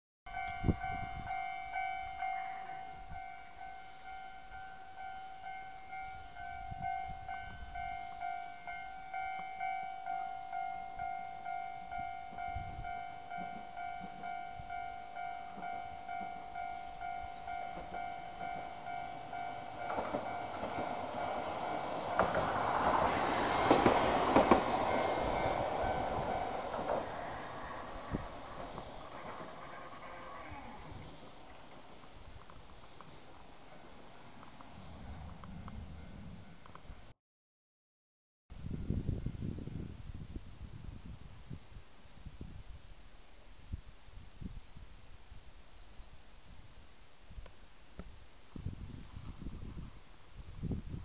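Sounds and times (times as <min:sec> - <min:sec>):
level-crossing warning bell ringing: 0:00.3 - 0:23.1, 0:24.4 - 0:30.5
tram rolling on rails: 0:00.3 - 0:37.0.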